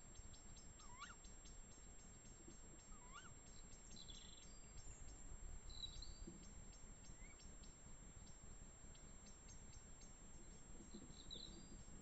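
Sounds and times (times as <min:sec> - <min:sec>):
short high chirping calls: 0:00.8 - 0:01.2.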